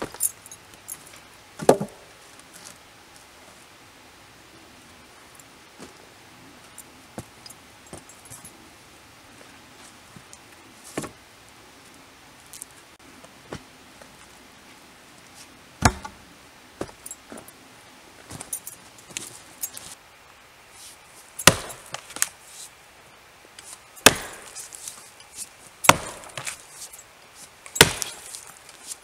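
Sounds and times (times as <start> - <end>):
wooden poles knocking: 1.6 - 2.1
keys jingling: 18.4 - 20.0.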